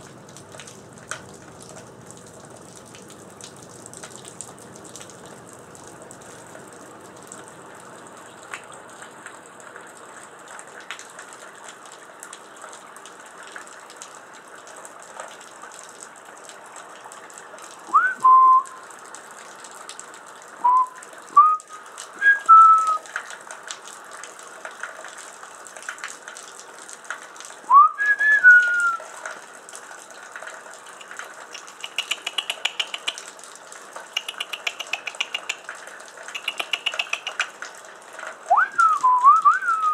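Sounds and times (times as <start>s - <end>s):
steady rain: 0.0s - 39.9s
person whistling: 17.9s - 18.8s, 20.6s - 23.0s, 27.7s - 29.0s, 38.5s - 39.9s.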